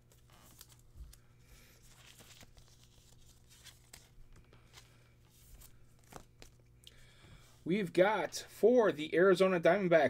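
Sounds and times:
trading cards rustling and clicking: 0.0 - 6.7.

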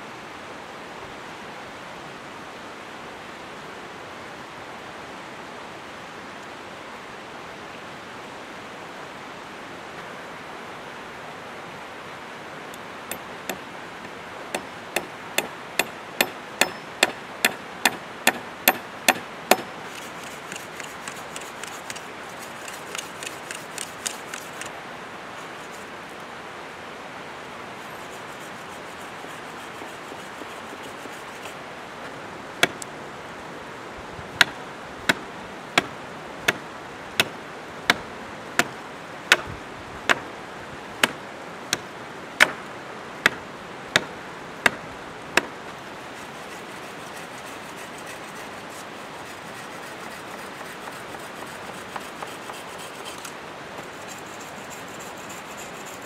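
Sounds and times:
river running: 0.0 - 56.0
hatchet chopping wood: 14.5 - 22.0, 32.6 - 32.8, 38.6 - 39.5, 41.0 - 41.8, 42.4 - 42.6, 43.2 - 44.8.

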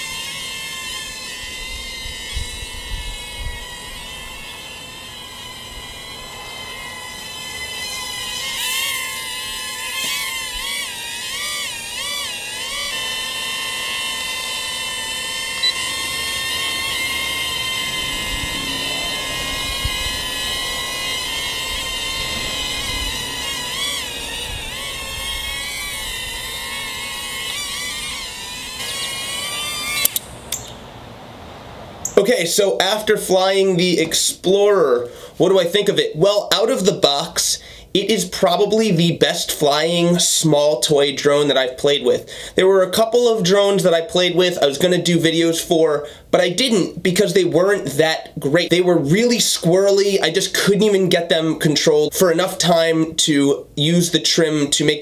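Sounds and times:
toy drone propellers whining: 0.0 - 30.8.

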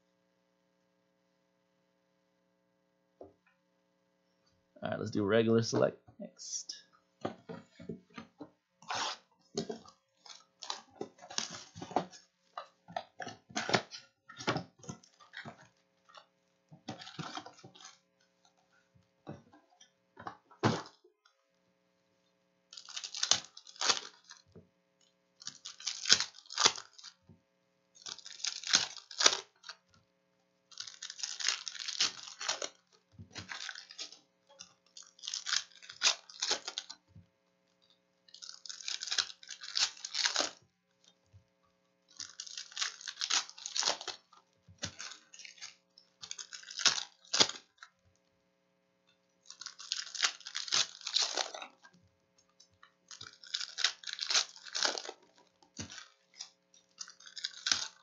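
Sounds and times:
foil wrappers crinkling and tearing: 8.9 - 12.3, 16.9 - 18.0, 22.7 - 24.5, 25.4 - 27.2, 28.0 - 30.0, 30.7 - 37.1, 37.7 - 41.2, 42.1 - 48.0, 49.4 - 51.9, 52.6 - 58.0.

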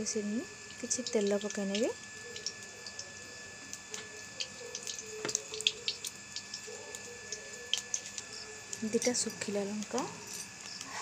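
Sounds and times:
hot oil hissing and crackling: 0.0 - 11.0.

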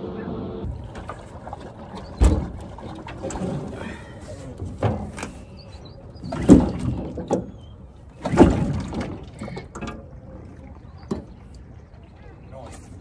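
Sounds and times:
outboard motor pull-start cranking: 0.7 - 4.0.

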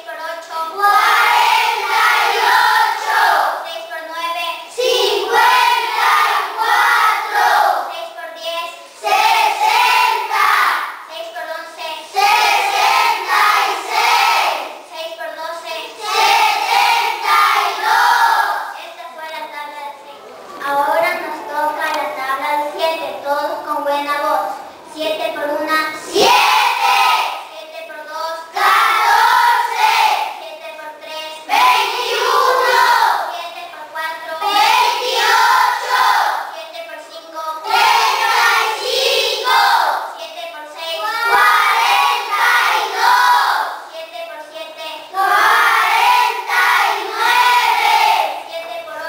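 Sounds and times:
children chanting in unison: 0.7 - 3.7, 4.7 - 7.9, 8.8 - 11.1, 12.0 - 14.9, 15.6 - 18.8, 24.5 - 27.5, 28.4 - 30.4, 31.1 - 33.4, 34.4 - 36.6, 37.6 - 40.2, 40.8 - 43.9, 44.9 - 48.5.

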